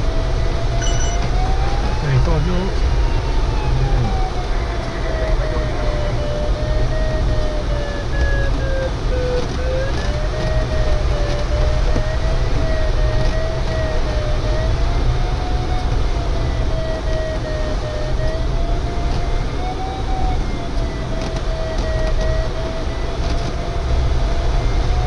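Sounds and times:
low cockpit rumble: 0.0s - 25.0s
wavering electronic tone: 0.7s - 2.7s.

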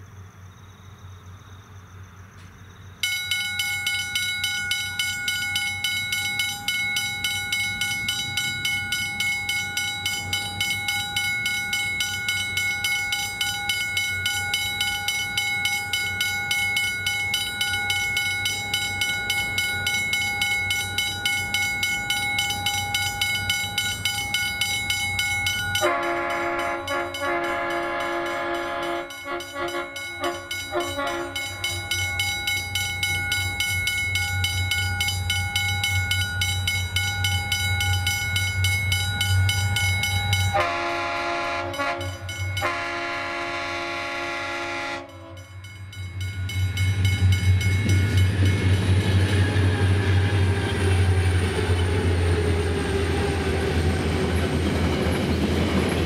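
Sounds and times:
locomotive rumble: 1.7s - 56.0s
level crossing bell ringing: 3.0s - 49.2s
train horn chord: 25.8s - 32.2s, 40.4s - 45.7s.

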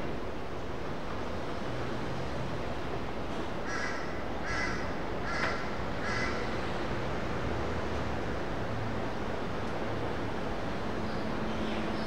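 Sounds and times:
steady background noise: 0.0s - 12.0s
crow cawing: 3.7s - 6.4s.

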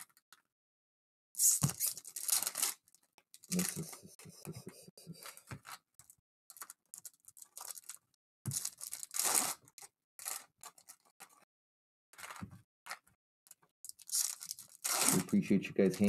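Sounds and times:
foil wrappers tearing and crinkling: 1.4s - 2.9s, 6.5s - 11.1s, 13.9s - 15.4s.

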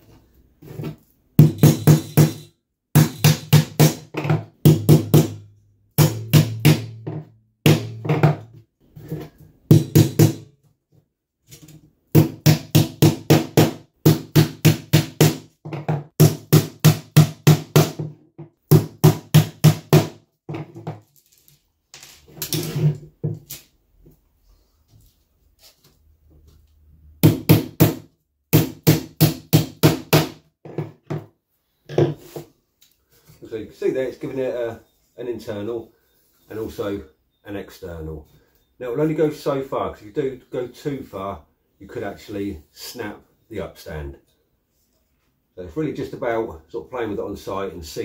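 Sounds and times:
hammer tapping metal strip: 1.4s - 5.4s.

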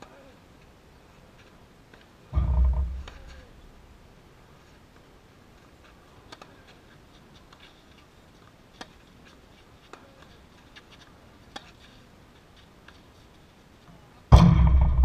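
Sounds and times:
rackets striking tennis ball: 2.4s - 3.6s.

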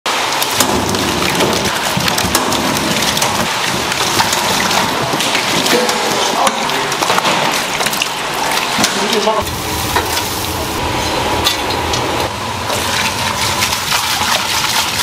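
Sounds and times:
eels slithering in water: 0.9s - 9.2s, 12.7s - 15.0s.

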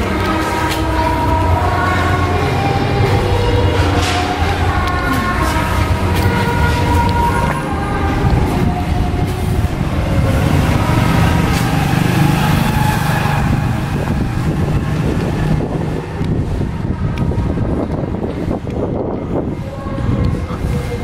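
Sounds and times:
steady low rumble: 0.0s - 21.0s
motor scooter riding past: 9.7s - 16.2s.

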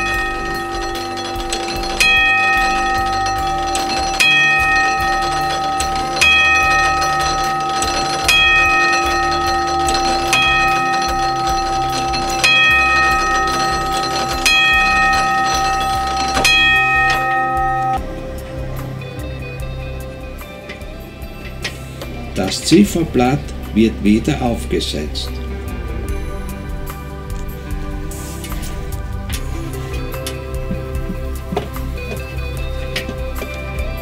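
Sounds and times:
clock bell striking: 0.0s - 34.0s.

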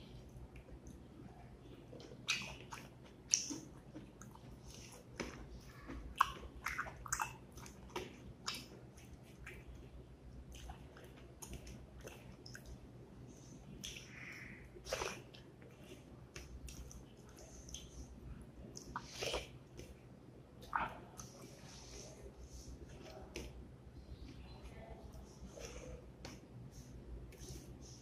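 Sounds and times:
chewing: 1.8s - 9.9s, 10.5s - 12.8s, 13.8s - 20.0s.

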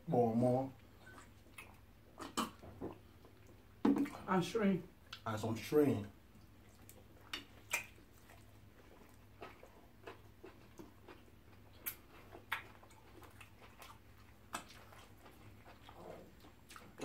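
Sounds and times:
wet mouth clicks and smacks: 6.8s - 8.5s, 11.8s - 14.8s.

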